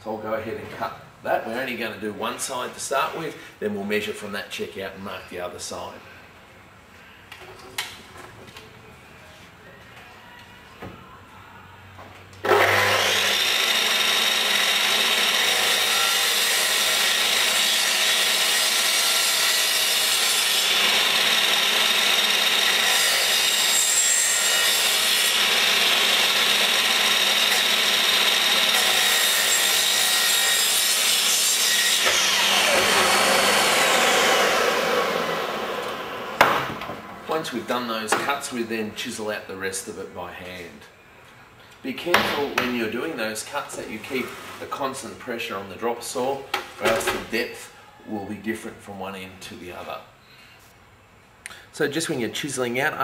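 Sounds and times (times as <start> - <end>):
mitre saw running and cutting timber: 12.5 - 36.5
saw blade whine spinning down: 32.0 - 36.4.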